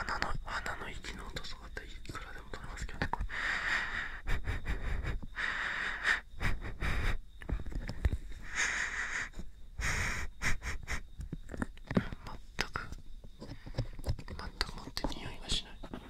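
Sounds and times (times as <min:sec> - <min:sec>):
person whispering: 0:00.0 - 0:03.3, 0:12.0 - 0:13.0, 0:14.2 - 0:16.0.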